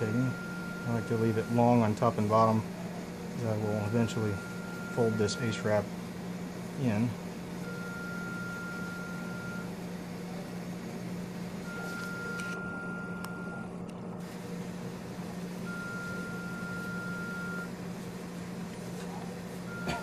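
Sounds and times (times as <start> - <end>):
electronic alarm beeping: 0.0 - 1.9, 3.5 - 5.8, 7.6 - 9.7, 11.6 - 13.7, 15.6 - 17.7
steady low hum: 0.0 - 20.0.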